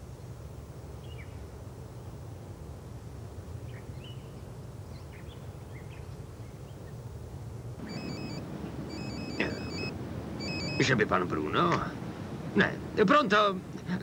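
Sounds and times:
low wind rumble: 0.0 - 14.0
faint bird chirps: 3.4 - 7.0, 7.8 - 11.1
mobile phone ringing: 7.8 - 11.0.

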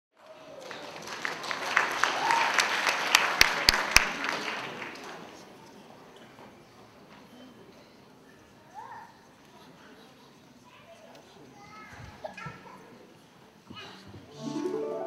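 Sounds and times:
audience applauding: 0.2 - 5.3.

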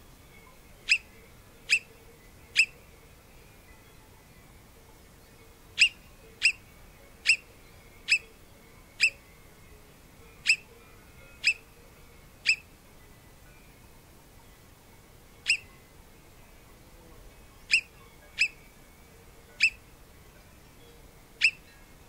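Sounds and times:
marmot alarm whistles: 0.9 - 1.1, 1.7 - 1.9, 5.8 - 6.6, 9.0 - 9.2, 10.5 - 10.7, 15.5 - 15.7, 17.7 - 18.6, 19.6 - 19.8, 21.4 - 21.6.

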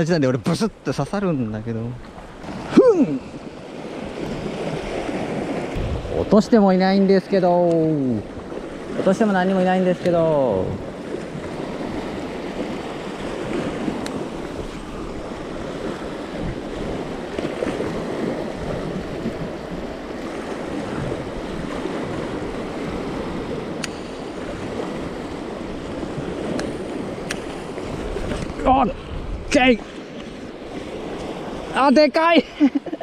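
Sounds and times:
sea surf washing over reef: 0.0 - 33.0.

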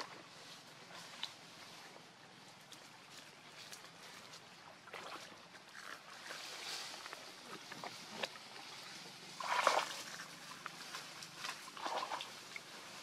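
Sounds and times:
dry leaves rustling: 6.0 - 13.0.

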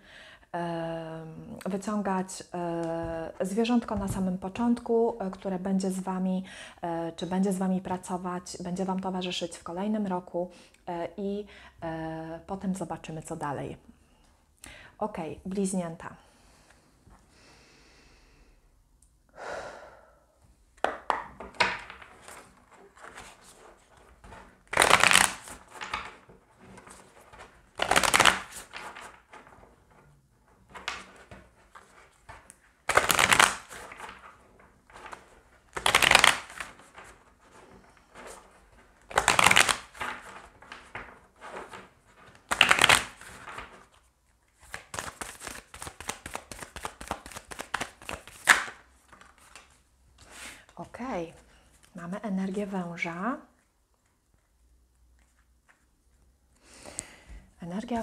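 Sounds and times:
card rustles and taps: 20.8 - 49.8
cards swishing while shuffled: 21.8 - 29.7, 30.7 - 44.0, 44.6 - 50.7.

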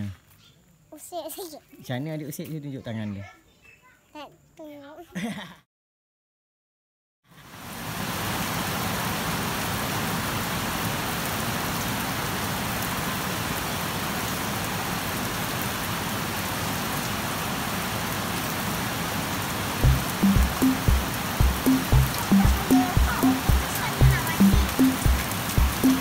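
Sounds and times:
steady rain falling: 7.3 - 26.0.

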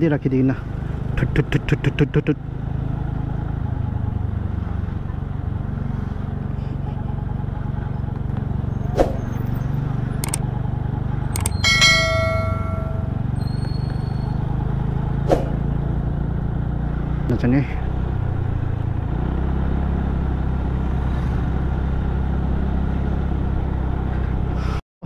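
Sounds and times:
scooter engine running: 9.8 - 15.2
mouse clicks: 10.2 - 10.4
bell chime: 11.4 - 14.4.

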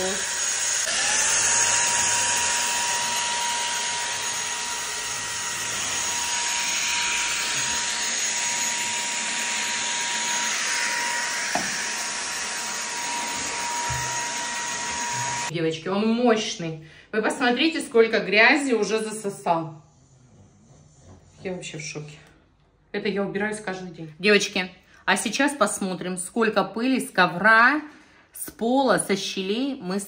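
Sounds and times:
stick vacuum running: 0.0 - 15.5.

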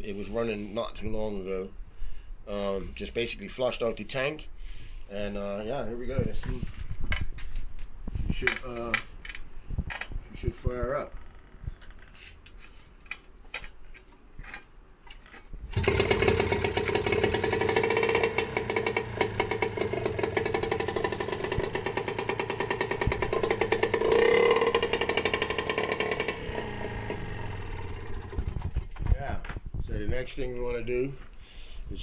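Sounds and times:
outboard motor running: 15.7 - 28.8.

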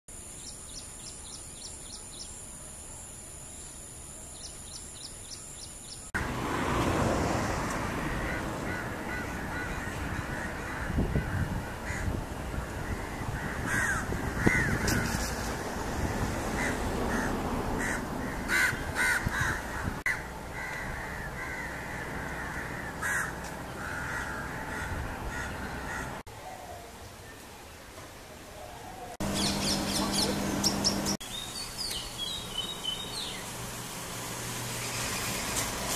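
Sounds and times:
harsh caw-like bird calls: 8.0 - 15.4, 16.0 - 26.2.

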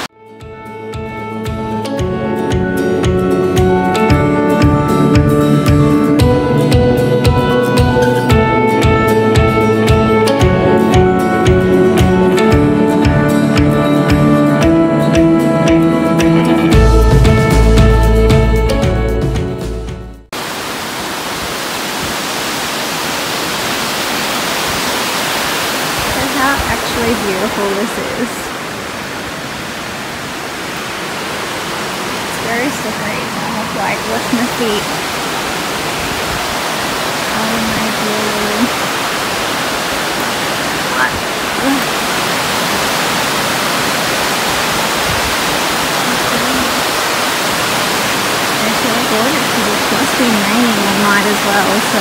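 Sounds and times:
water rushing over rocks: 20.3 - 52.0.

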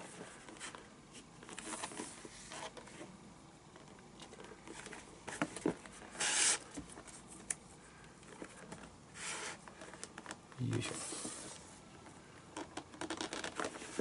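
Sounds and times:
lace rasping through leather: 13.0 - 13.7.

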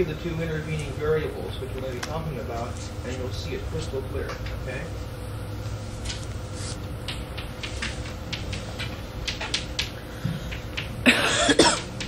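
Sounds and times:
tape hum: 0.7 - 12.0
chalk on blackboard: 6.5 - 6.8.

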